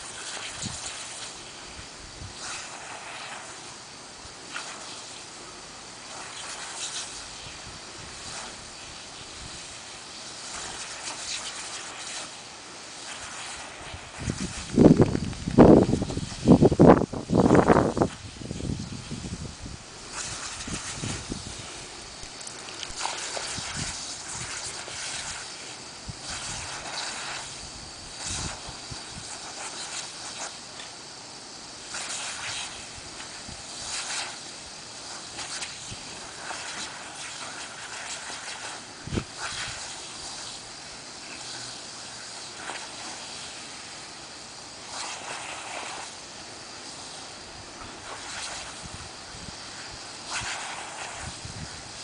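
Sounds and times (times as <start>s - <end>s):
dogs splashing in water jet: 0.0s - 19.3s, 19.9s - 31.0s, 31.7s - 52.0s
sprinkler spray hissing: 0.0s - 52.0s.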